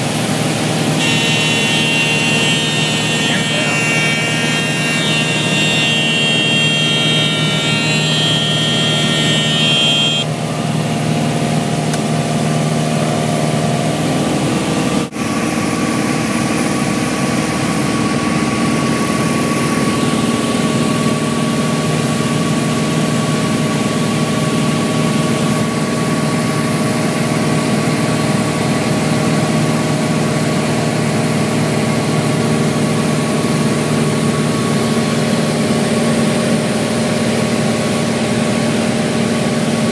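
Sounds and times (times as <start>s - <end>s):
high steady tones: 1.0s - 10.3s.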